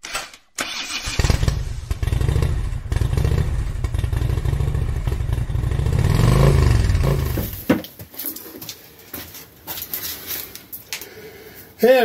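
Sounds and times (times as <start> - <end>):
motorcycle engine running: 1.2 - 7.6.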